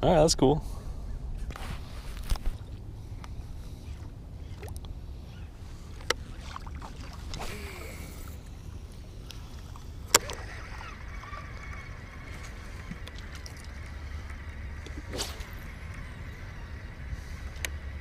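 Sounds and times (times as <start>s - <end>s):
low rumble: 0.6s - 18.0s
fishing reel whine: 7.3s - 18.0s.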